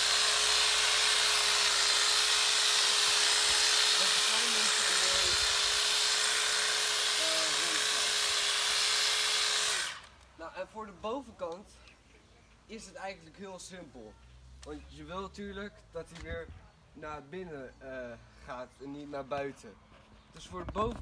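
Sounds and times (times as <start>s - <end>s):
electric hedge trimmer running: 0.0s - 10.2s.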